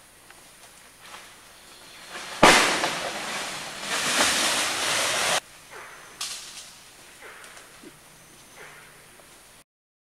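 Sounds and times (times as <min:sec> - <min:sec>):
rustle of leaves and stems: 0:00.0 - 0:05.4.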